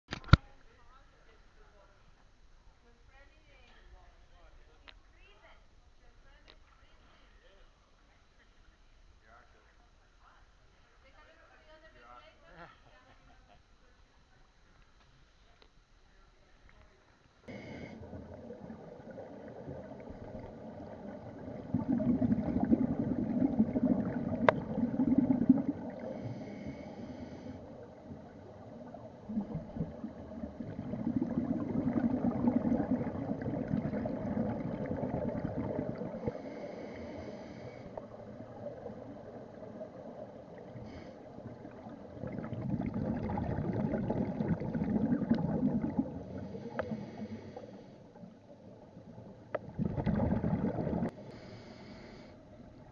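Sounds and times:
regulator inhale hiss: 17.5 - 18.2, 25.8 - 28.3, 36.0 - 38.2, 40.6 - 41.6, 46.1 - 48.4, 51.1 - 52.6
exhaled bubbles rushing: 17.6 - 26.7, 27.6 - 36.6, 37.9 - 47.4, 48.1 - 51.2.

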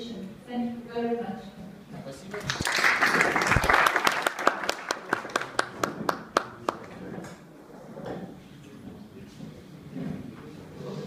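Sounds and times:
single claps: 2.4 - 6.9
audience applause: 2.4 - 7.0.

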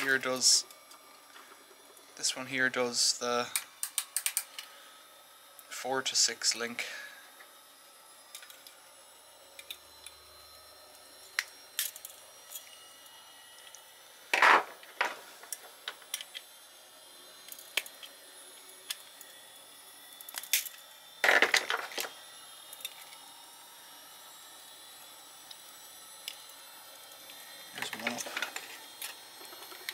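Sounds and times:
tools clicking and scraping metal: 3.5 - 4.7, 11.3 - 12.8.

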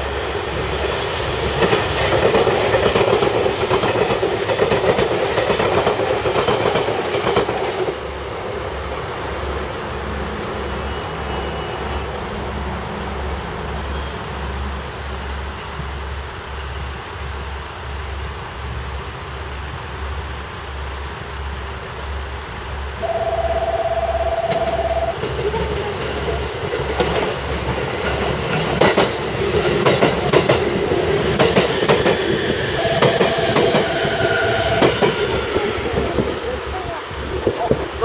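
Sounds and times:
train wheels clattering over rail joints: 1.4 - 8.0, 25.2 - 36.2
buzzing tone: 23.0 - 25.2
train motor whine: 23.0 - 25.2, 32.7 - 35.9.

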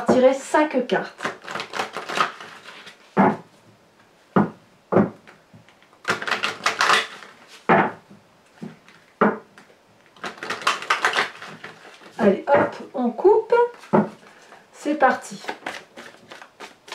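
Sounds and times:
cards shuffled by hand: 1.2 - 3.0, 5.7 - 7.6, 10.1 - 12.2, 15.3 - 16.9.

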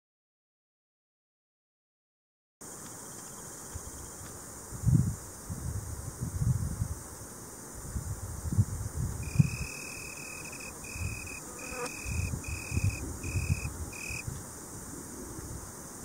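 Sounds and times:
tree cricket trilling: 2.6 - 5.0, 9.2 - 14.4
wind rumble on microphone: 4.7 - 7.2, 7.8 - 9.8, 10.8 - 11.3, 12.0 - 16.0.

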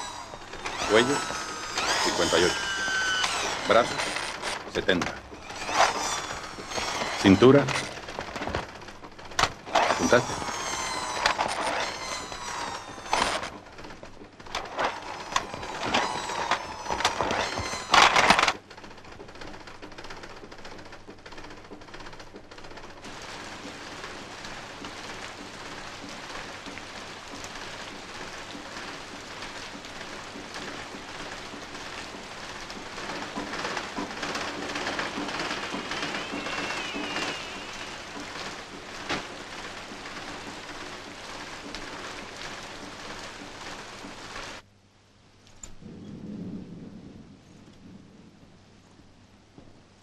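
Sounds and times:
sewing machine running: 0.0 - 8.8, 30.5 - 43.7
rain hissing: 0.0 - 50.0.

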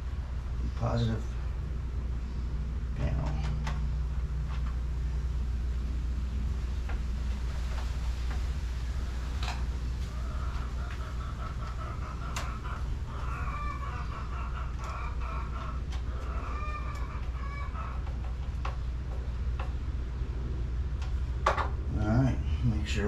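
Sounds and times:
steady low hum: 0.0 - 23.0
chickens clucking: 9.5 - 19.9
wires clicking into terminals: 20.9 - 21.7.

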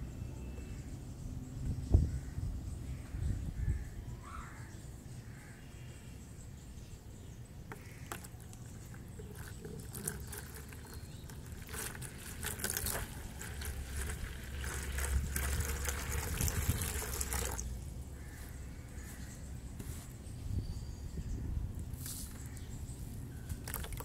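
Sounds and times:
water pouring into plastic tub: 8.1 - 17.8, 23.6 - 24.0.

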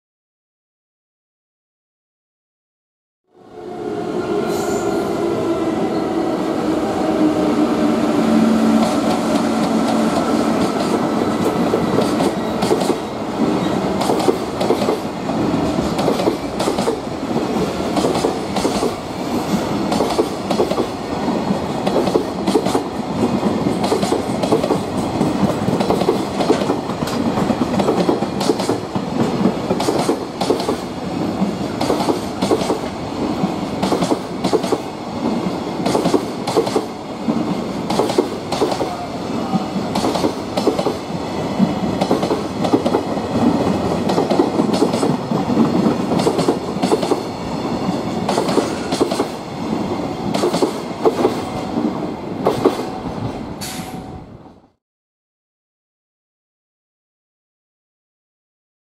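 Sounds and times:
electric locomotive hum: 3.3 - 14.6
train wheels clacking over rail joints: 8.8 - 13.0, 14.0 - 15.0, 15.7 - 19.0, 19.9 - 20.9, 21.8 - 32.9, 33.8 - 38.9, 39.9 - 49.4, 50.3 - 51.6.

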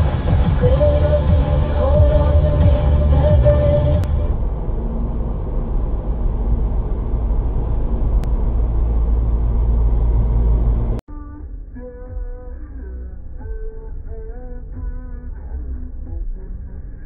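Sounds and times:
car engine and tyre noise: 0.0 - 11.0.

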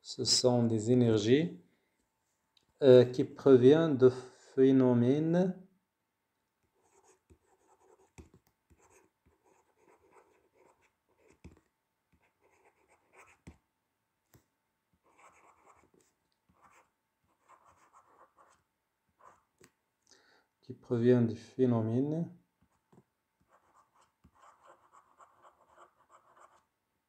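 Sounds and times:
stylus writing on tablet: 6.6 - 13.6, 15.0 - 19.7, 22.6 - 26.7.

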